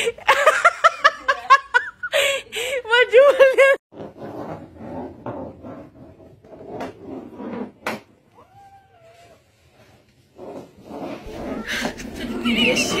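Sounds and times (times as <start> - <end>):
cat meowing: 8.4 - 9.4.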